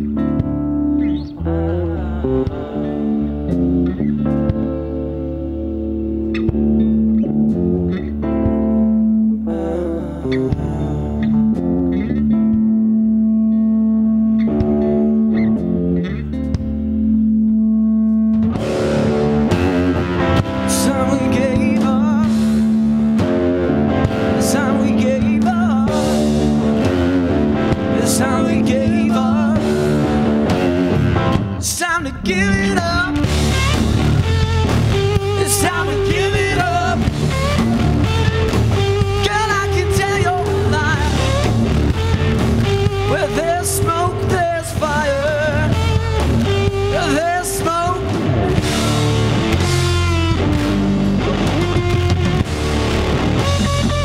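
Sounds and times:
rock music with guitar: 0:00.0 - 0:54.0.

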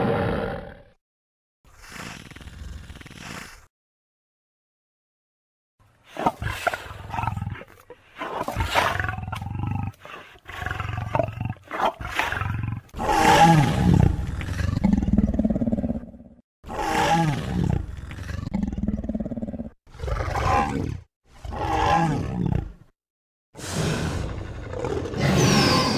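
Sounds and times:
deep growling dinosaur roars: 0:12.3 - 0:22.8.

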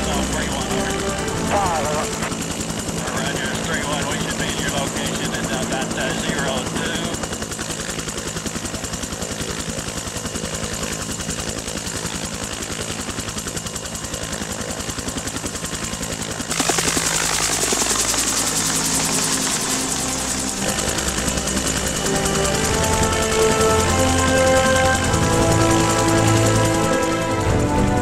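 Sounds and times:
music: 0:00.0 - 0:07.0, 0:18.8 - 0:28.0
helicopter rotor beating: 0:00.0 - 0:28.0
turbine whine: 0:00.0 - 0:28.0.

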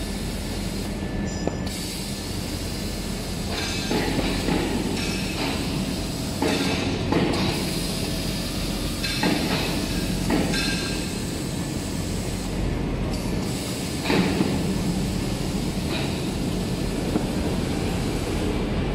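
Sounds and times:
machine clattering knock: 0:09.1 - 0:10.9.

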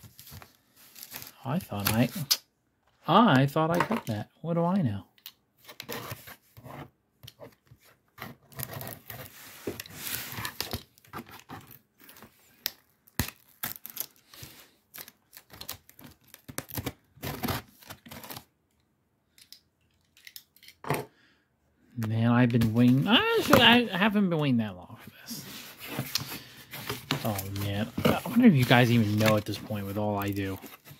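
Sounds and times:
plastic wrap tearing and crinkling: 0:11.6 - 0:18.5, 0:27.2 - 0:30.9.

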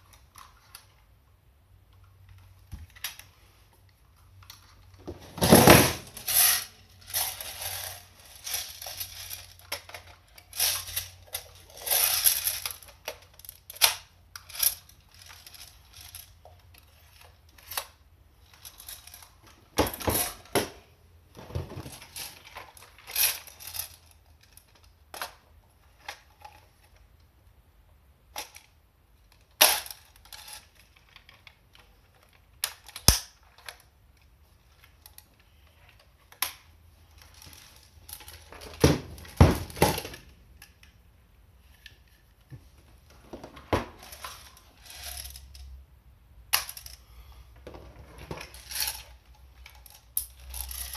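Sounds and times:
rifles clicking and rattling: 0:04.4 - 0:20.8, 0:29.3 - 0:41.0, 0:43.8 - 0:45.8, 0:48.1 - 0:50.9.

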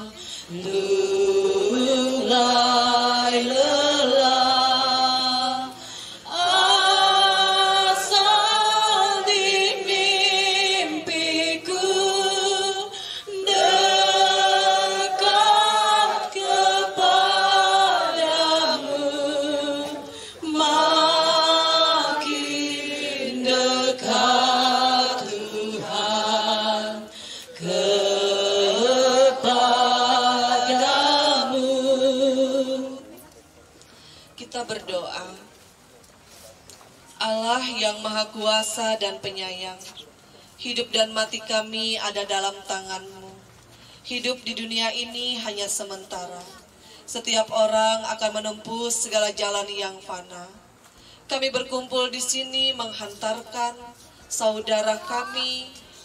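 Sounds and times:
group singing a hymn: 0:00.0 - 0:33.2.

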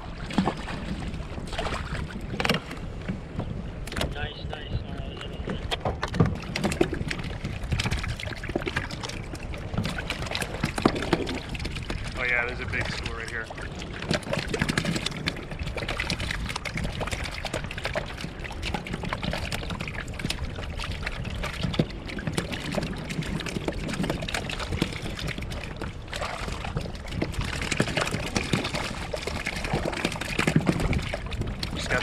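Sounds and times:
waves lapping against hull: 0:00.0 - 0:32.0.

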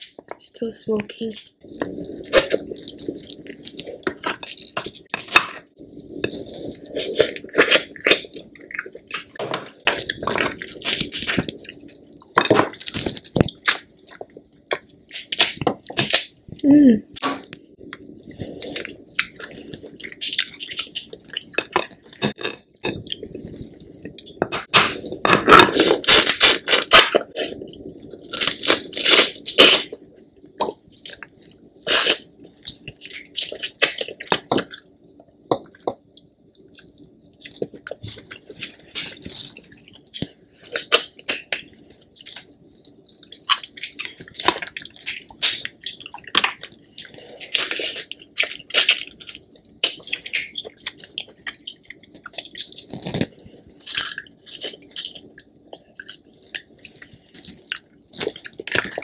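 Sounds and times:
wet chewing: 0:01.6 - 0:16.4, 0:17.4 - 0:59.0.

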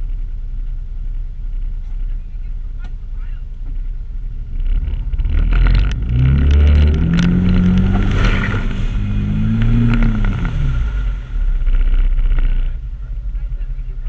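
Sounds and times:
atv engine revving: 0:00.0 - 0:14.0
water splashing in mud: 0:06.2 - 0:11.2.

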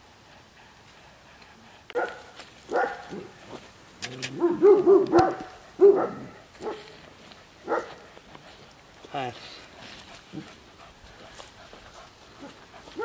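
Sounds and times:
dog barking: 0:02.0 - 0:03.3, 0:04.4 - 0:06.9, 0:07.6 - 0:08.0.

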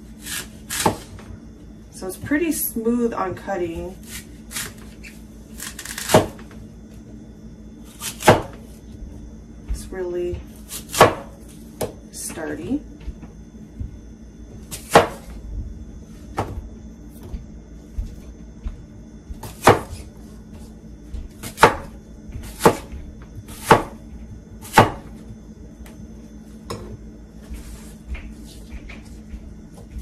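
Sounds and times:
knife chopping on cutting board: 0:00.2 - 0:01.1, 0:08.0 - 0:08.6, 0:09.7 - 0:12.0, 0:14.7 - 0:15.4, 0:19.3 - 0:24.0, 0:24.6 - 0:25.2.

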